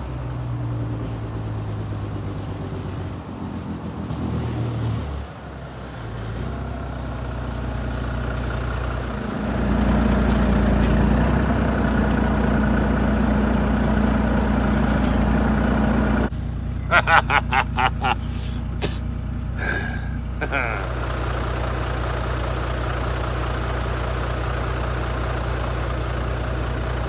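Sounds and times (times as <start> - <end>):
lorry diesel engine idling: 6.6 - 27.0.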